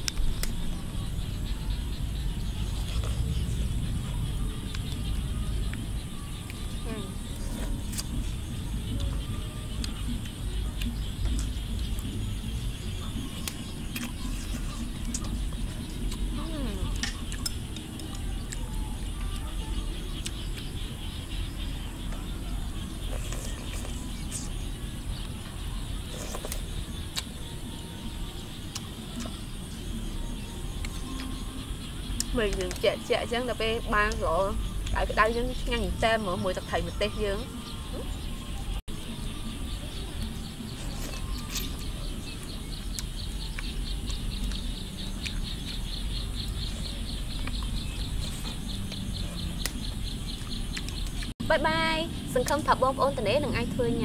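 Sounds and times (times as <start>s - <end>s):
steady low rumble: 0.0s - 40.8s.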